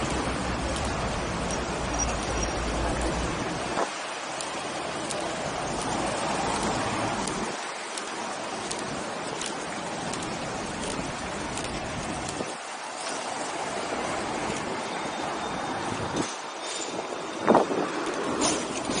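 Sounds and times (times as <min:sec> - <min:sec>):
faint regular ticks: 0:00.0 - 0:03.3
wind rushing on microphone: 0:09.8 - 0:12.8, 0:13.4 - 0:19.0.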